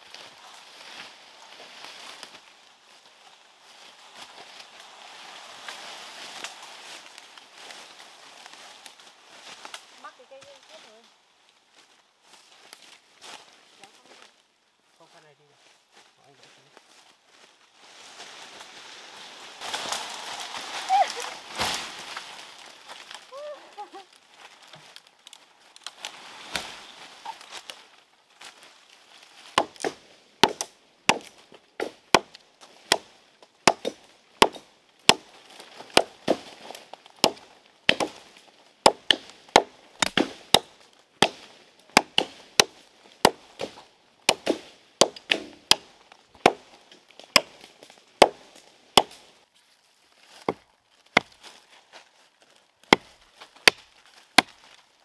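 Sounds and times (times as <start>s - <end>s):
wood being chopped: 29.4s - 49.3s, 50.3s - 51.5s, 52.8s - 54.7s.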